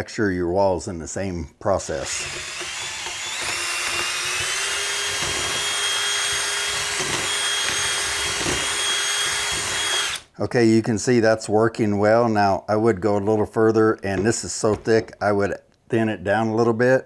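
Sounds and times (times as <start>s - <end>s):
drill motor whine: 2.0s - 10.3s.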